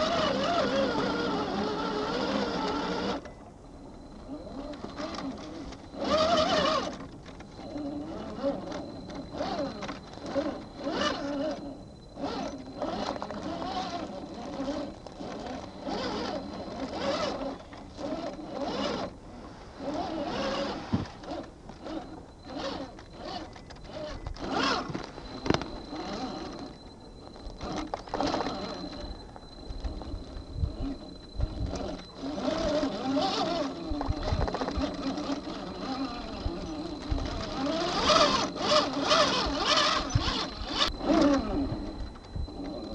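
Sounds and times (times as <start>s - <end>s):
electric motor whining: 0.0s - 42.9s
tyres crunching over dirt and rocks: 27.3s - 42.9s.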